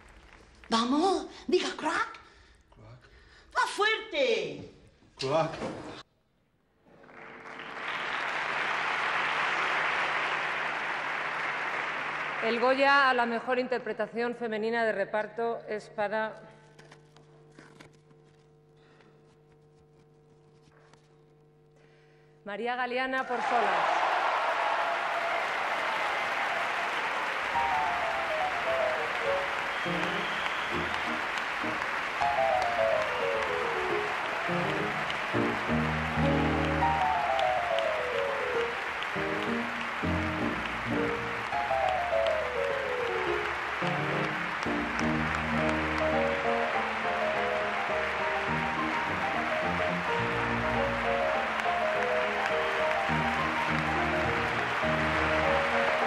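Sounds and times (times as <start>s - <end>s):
audience applauding: 6.8s - 13.2s, 23.2s - 56.0s
music playing: 27.0s - 56.0s.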